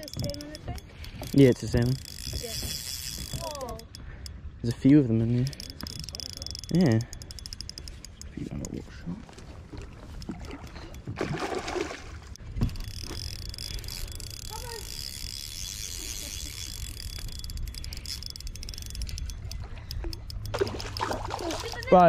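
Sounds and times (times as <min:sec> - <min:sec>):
fish splashing in water: 0:09.7 - 0:12.4, 0:20.0 - 0:22.0.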